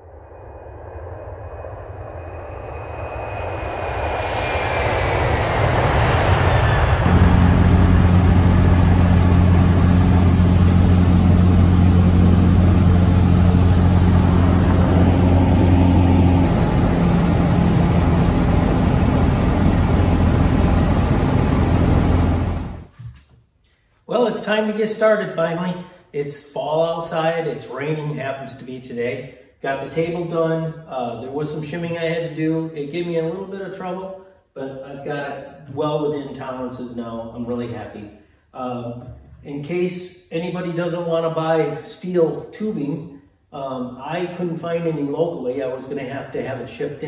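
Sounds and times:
aircraft engine and propeller drone: 0.0 - 22.9
faint falling whine: 0.0 - 22.9.

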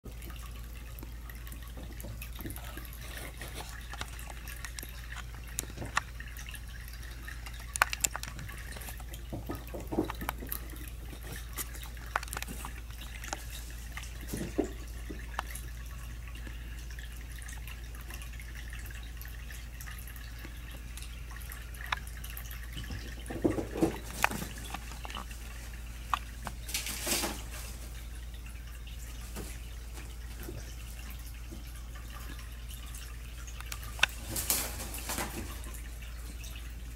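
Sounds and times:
kittens tapping and rustling: 1.6 - 15.7, 21.7 - 28.1, 33.5 - 36.4.

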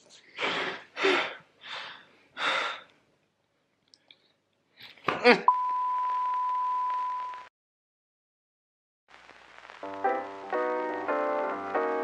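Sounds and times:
test-tone beep: 5.5 - 7.5
faint static hiss: 9.1 - 12.0.

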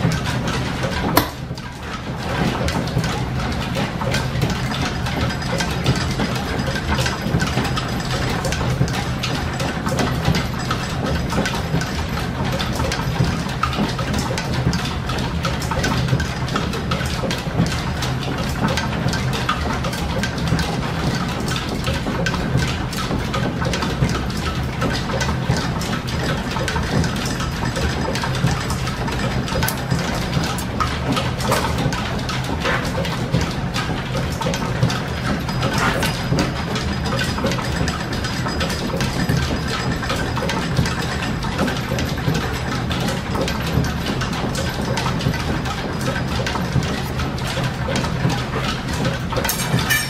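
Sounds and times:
metal lathe running: 0.0 - 3.8, 24.2 - 50.0
belts and overhead shafting running: 0.0 - 50.0.

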